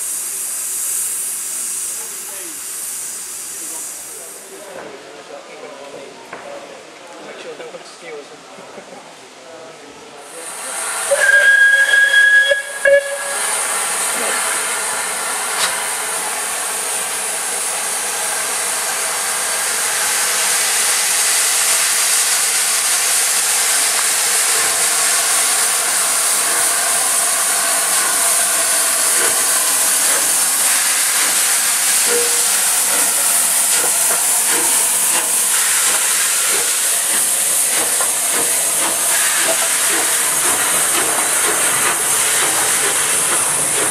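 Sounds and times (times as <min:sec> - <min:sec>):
steam hissing: 0:00.0 - 0:04.8, 0:10.2 - 0:43.9
steam locomotive whistle: 0:10.7 - 0:15.8, 0:24.0 - 0:36.6.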